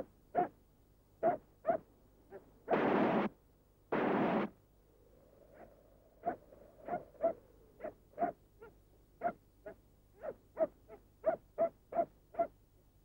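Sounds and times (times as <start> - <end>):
dog barking: 0.3 - 0.6, 1.2 - 2.4, 5.6 - 12.6.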